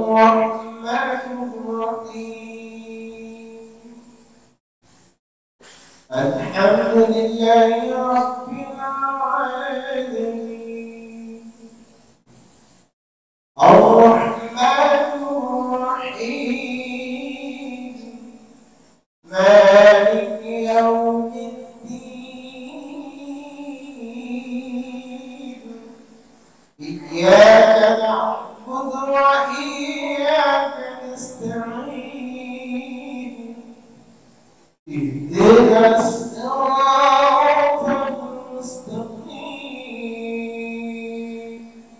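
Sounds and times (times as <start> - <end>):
man chanting: 0.0 - 4.2, 6.1 - 11.8, 13.6 - 18.5, 19.2 - 26.0, 26.8 - 33.9, 34.9 - 41.9.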